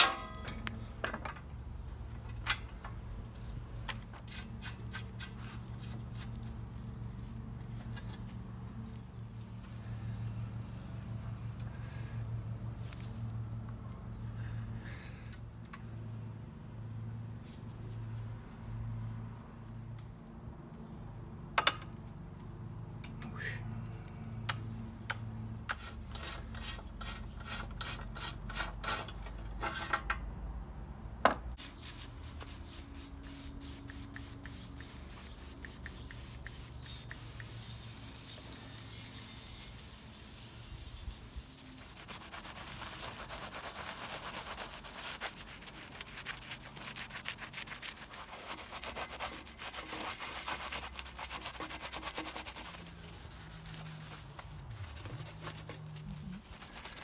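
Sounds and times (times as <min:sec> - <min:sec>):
spray hissing: 0:31.6 - 0:41.8
brush scrubbing metal frame: 0:31.8 - 0:57.0
sharp clicks: 0:33.8 - 0:37.6.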